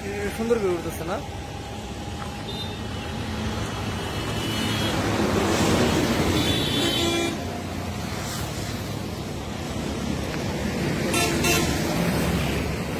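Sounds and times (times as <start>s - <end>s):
road traffic passing: 0.0s - 12.9s
vehicle horn tooting: 6.4s - 7.4s.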